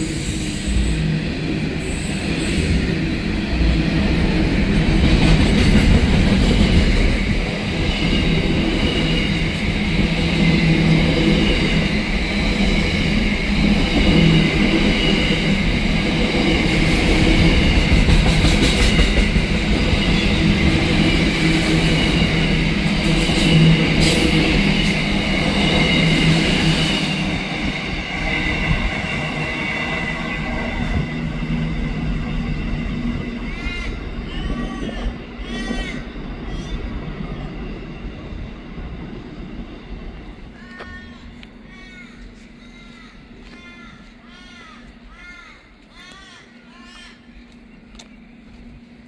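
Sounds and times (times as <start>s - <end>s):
train wheels rumbling on rail: 0.0s - 49.0s.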